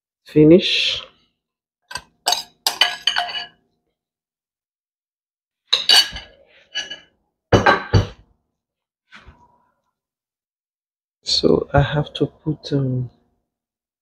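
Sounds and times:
metal spoon clinking glass bowl: 0:01.9 - 0:03.6, 0:05.7 - 0:07.1.

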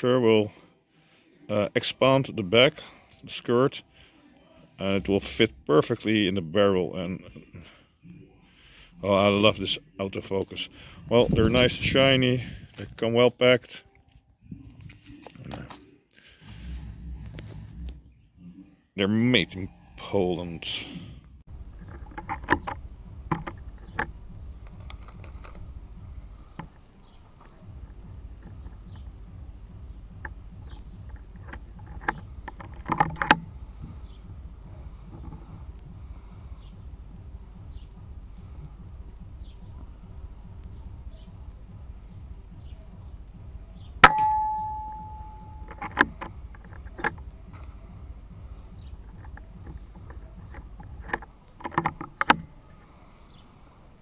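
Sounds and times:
low steady rumble: 0:16.2 - 0:18.7, 0:19.5 - 0:54.0
air rifle clicks and knocks: 0:21.8 - 0:25.8, 0:30.2 - 0:34.2, 0:44.0 - 0:47.3, 0:49.0 - 0:52.6
air rifle shot with metallic ring: 0:44.0 - 0:45.7.

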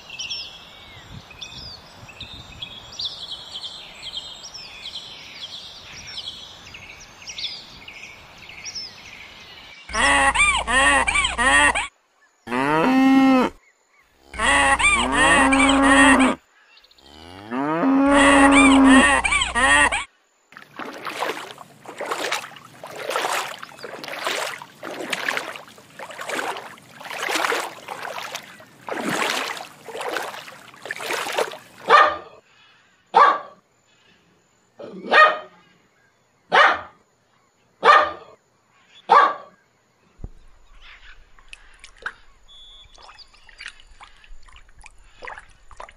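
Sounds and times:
cows mooing: 0:12.5 - 0:13.6, 0:14.2 - 0:16.4, 0:17.0 - 0:20.0.

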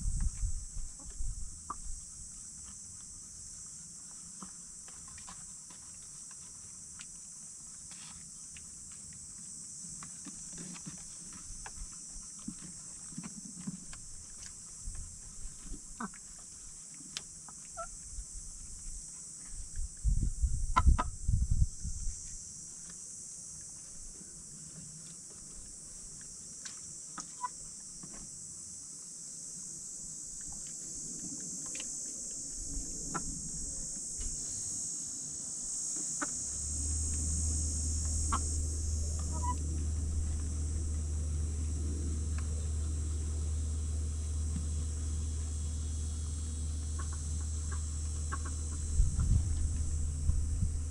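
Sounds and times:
steady low hum: 0:00.0 - 0:50.9
steady high hiss: 0:16.6 - 0:50.9
loud low rumble: 0:36.4 - 0:50.9
chickens clucking: 0:38.1 - 0:39.6, 0:46.9 - 0:49.3.

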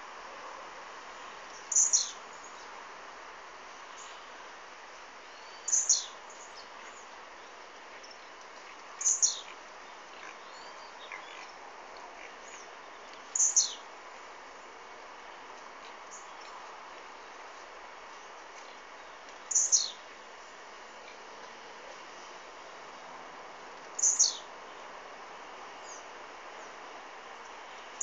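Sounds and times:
faint bird chirps: 0:01.5 - 0:02.7, 0:05.2 - 0:08.4, 0:09.0 - 0:11.6, 0:12.3 - 0:13.8, 0:19.4 - 0:20.0, 0:24.0 - 0:24.8
bird singing short song: 0:01.6 - 0:02.6, 0:05.3 - 0:07.1, 0:09.0 - 0:09.6, 0:13.3 - 0:13.8, 0:19.5 - 0:20.0, 0:24.0 - 0:24.5.

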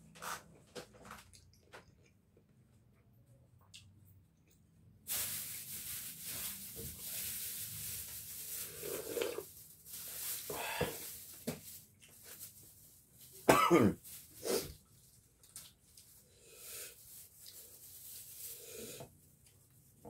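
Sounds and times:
steady hiss: 0:05.1 - 0:12.5
man coughing: 0:13.5 - 0:14.0.

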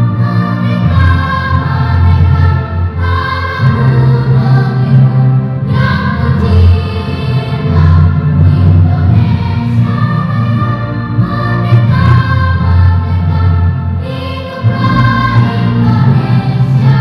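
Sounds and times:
children's choir singing: 0:00.0 - 0:17.0.

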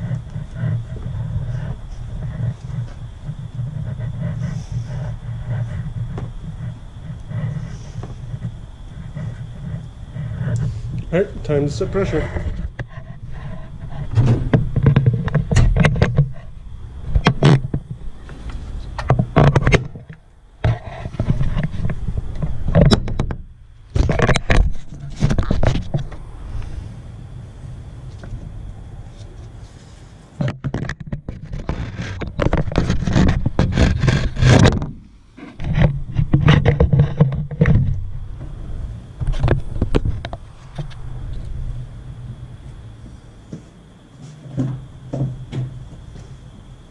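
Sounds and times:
faint high whine: 0:00.0 - 0:46.9
steady low hum: 0:00.0 - 0:46.9
parts clicking and knocking: 0:12.4 - 0:16.4, 0:17.1 - 0:26.2, 0:30.4 - 0:38.6
knocks and clatter of handling: 0:30.4 - 0:35.0, 0:35.6 - 0:38.0.

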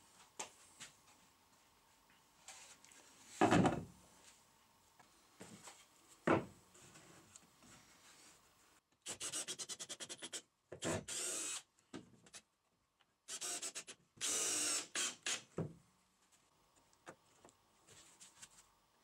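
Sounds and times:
cordless drill clicking and whirring: 0:11.1 - 0:11.7, 0:13.3 - 0:15.5.

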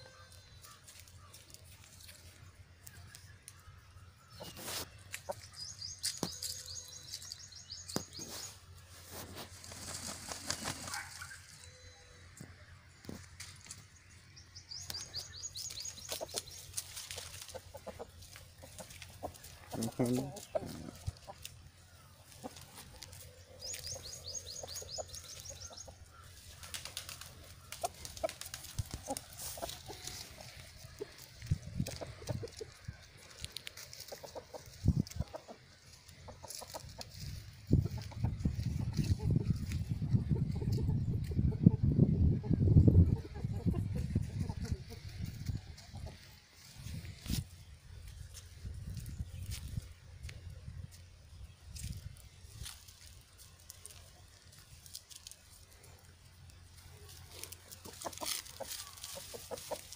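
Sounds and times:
small bird chirping: 0:00.0 - 0:08.8, 0:10.6 - 0:46.2
rustle: 0:00.2 - 0:12.4, 0:14.8 - 0:38.1, 0:51.7 - 0:59.9
dry crackles and taps: 0:06.0 - 0:08.2.

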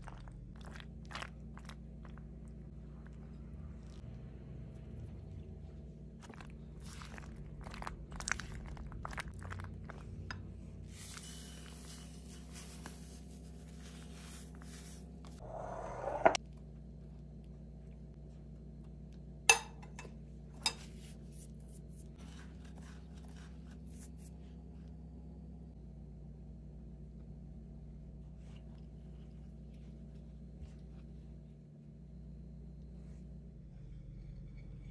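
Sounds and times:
low steady hum: 0:00.0 - 0:34.9
spatula scraping glass bowl: 0:15.4 - 0:16.4.

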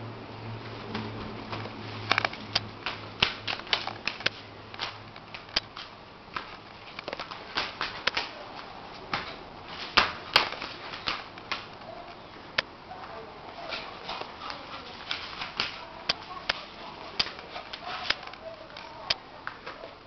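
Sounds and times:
dog claws clicking on hard floor: 0:01.5 - 0:08.3, 0:13.7 - 0:19.8.

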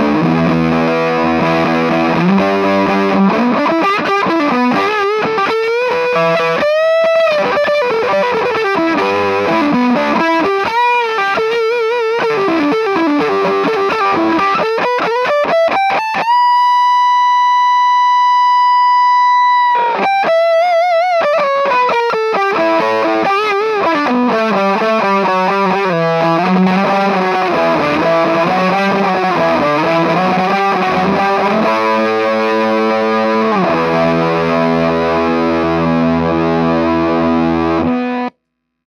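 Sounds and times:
fuzzed electric guitar: 0:00.0 - 0:38.4.

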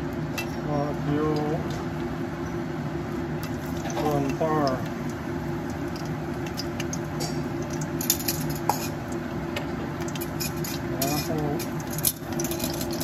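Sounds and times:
food frying in oil crackling: 0:01.4 - 0:13.0.

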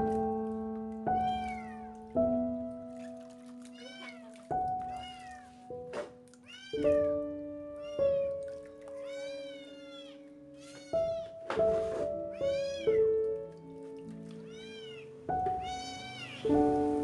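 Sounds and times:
background music: 0:00.0 - 0:17.0
kitten meowing: 0:01.2 - 0:01.9, 0:03.7 - 0:05.5, 0:06.4 - 0:07.1, 0:07.8 - 0:08.4, 0:09.0 - 0:11.4, 0:12.3 - 0:13.1, 0:14.4 - 0:16.5.

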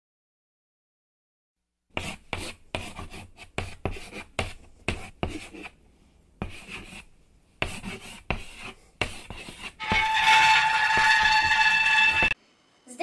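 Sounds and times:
pen scratching on paper: 0:02.0 - 0:05.8, 0:06.4 - 0:11.4.

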